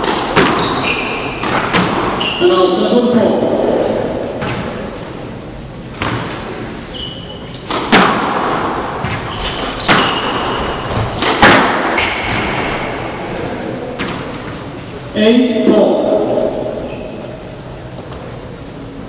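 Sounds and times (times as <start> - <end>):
squash ball cracking off walls: 0.0 - 2.2, 6.0 - 6.5, 7.6 - 13.0
shoes squeaking on wooden floor: 0.4 - 2.5, 6.0 - 7.8, 9.0 - 11.2, 11.9 - 12.6.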